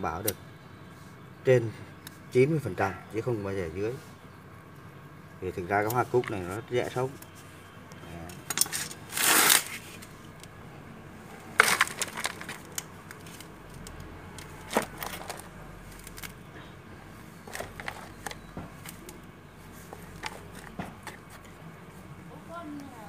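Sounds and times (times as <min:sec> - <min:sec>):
hands scooping potting soil: 0:11.6 - 0:16.5, 0:17.1 - 0:21.6.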